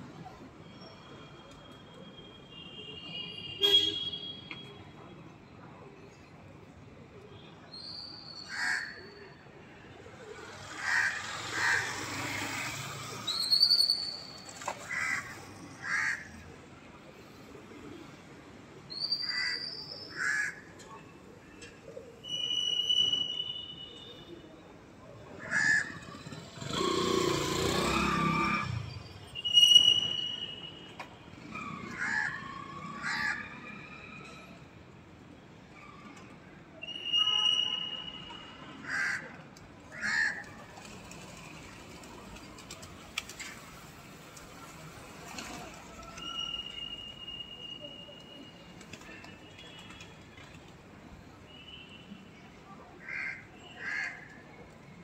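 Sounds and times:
crow cawing: 0:53.0 - 0:54.2.

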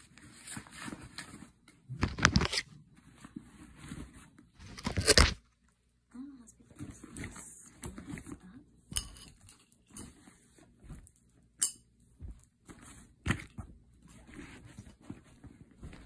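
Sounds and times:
handling rustling: 0:12.2 - 0:16.0.

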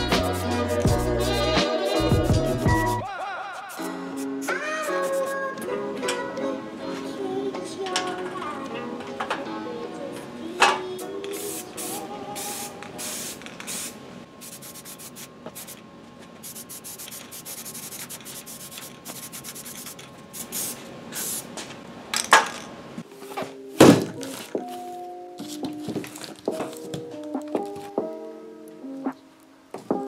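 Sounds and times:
short hissing spray bursts: 0:03.7 - 0:05.4, 0:11.3 - 0:15.8, 0:16.4 - 0:21.5.

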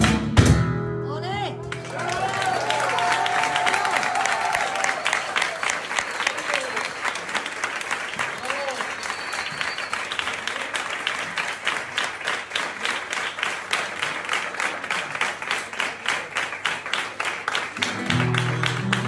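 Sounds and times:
many hands clapping: 0:01.6 - 0:19.0
flamenco guitar: 0:17.8 - 0:19.0.

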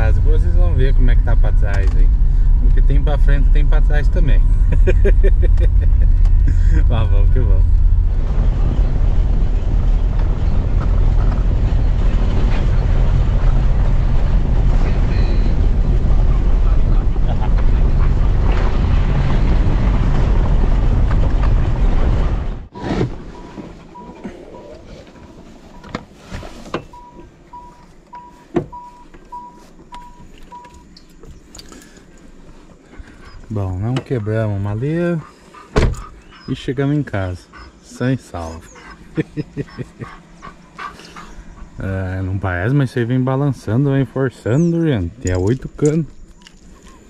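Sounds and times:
car rumbling over cobblestones: 0:00.0 - 0:26.0
car warning chime beeping: 0:23.9 - 0:24.7, 0:26.9 - 0:31.0.

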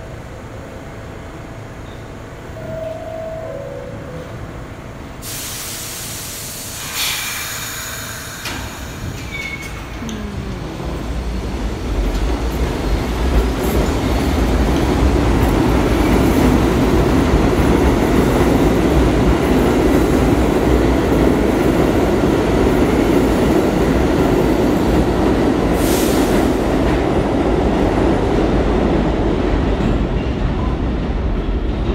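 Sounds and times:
subway train rumbling on rails: 0:00.0 - 0:31.9
brief high hiss: 0:05.2 - 0:09.7.

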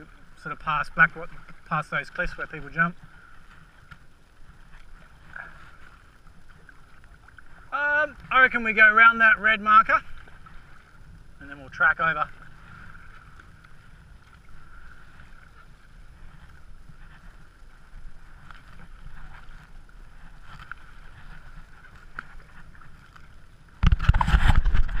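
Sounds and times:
paddle splashing in water: 0:00.0 - 0:25.0
wind on microphone: 0:12.3 - 0:25.0.

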